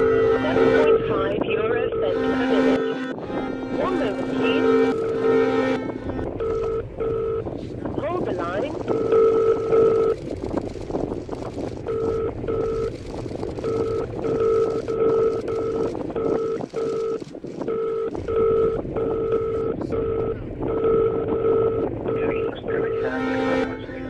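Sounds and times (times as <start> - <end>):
short electronic beeps: 0.0 - 3.1, 6.4 - 7.4, 8.9 - 10.2, 11.9 - 24.0
rough rumbling noise drone: 0.0 - 24.0.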